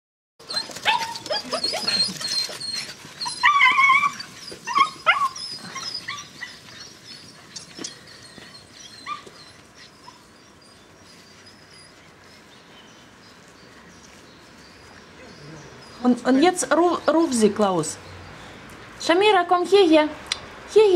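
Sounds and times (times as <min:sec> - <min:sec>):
puppies yapping: 0:00.4 - 0:12.5
puppies yelping and whining: 0:00.4 - 0:12.6.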